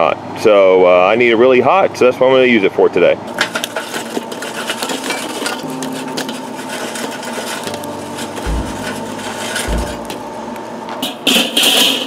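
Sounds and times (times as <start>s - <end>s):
charcoal clattering onto coals: 3.3s - 10.3s, 11.0s - 12.0s.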